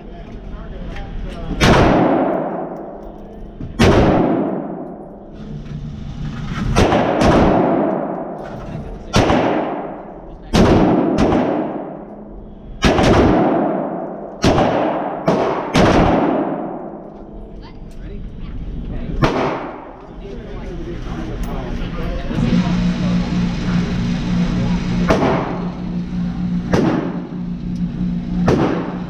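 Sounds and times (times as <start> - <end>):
rifle shots echoing indoors: 1.6 - 3.1, 3.8 - 5.2, 6.7 - 8.4, 9.1 - 17.4, 19.2 - 20.0, 26.7 - 27.4, 28.4 - 29.0.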